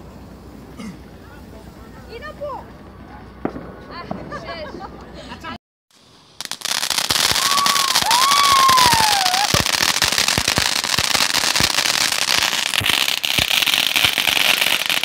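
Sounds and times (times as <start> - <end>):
firework hissing and crackling: 0.0 - 2.7, 5.9 - 15.0
descending firework whistle: 6.4 - 11.8.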